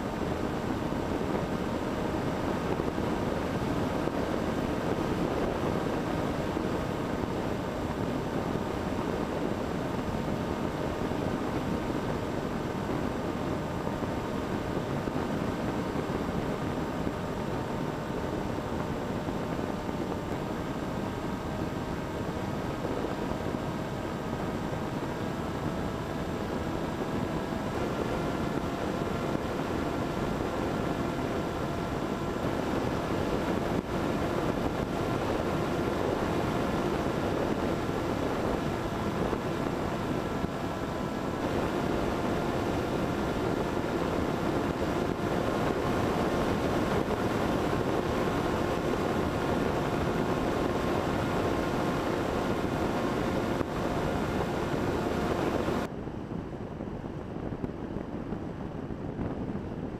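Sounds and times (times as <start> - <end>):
electric motor and propeller: 0.0 - 55.9
wind rushing over microphone: 0.0 - 59.9.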